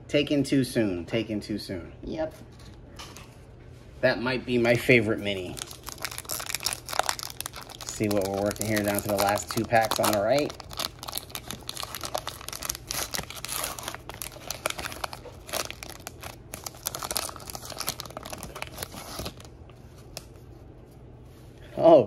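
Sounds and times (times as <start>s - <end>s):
wrapper tearing and crinkling: 5.4s - 19.5s.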